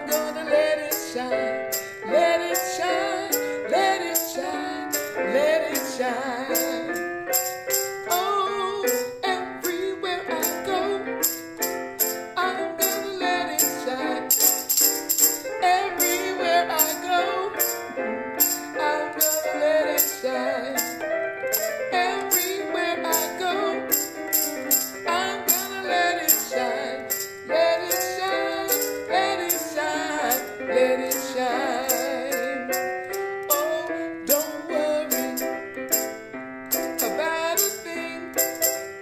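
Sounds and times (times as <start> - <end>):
woman singing: 0.0 - 11.4, 12.3 - 32.8, 33.4 - 36.0, 36.9 - 38.9
electronic keyboard playing: 0.0 - 39.0
tambourine shaken: 0.0 - 39.0.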